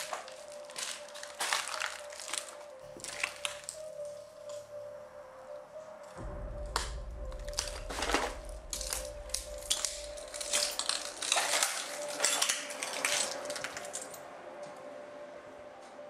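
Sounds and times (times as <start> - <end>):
footsteps crunching on debris: 0.0 - 4.0, 6.9 - 14.2.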